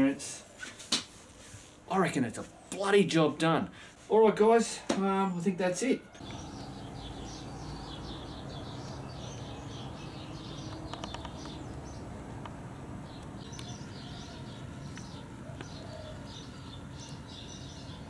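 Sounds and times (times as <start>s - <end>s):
low outdoor rumble: 6.2s - 18.0s
small birds chirping: 6.2s - 18.0s
cluster of clicks: 10.6s - 11.6s, 12.4s - 12.6s, 14.9s - 15.8s.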